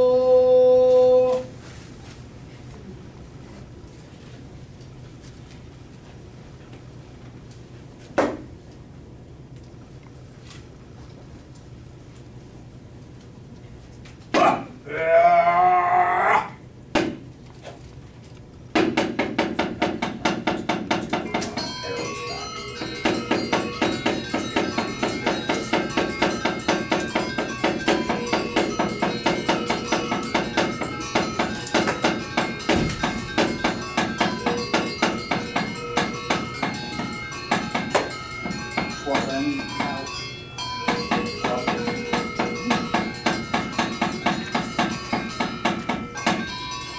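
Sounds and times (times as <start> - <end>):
loud vocal cry: 14.3 - 16.6
knock: 17.0 - 17.2, 18.8 - 21.6, 22.9 - 40.0, 40.9 - 46.5
metallophone music: 21.1 - 46.9.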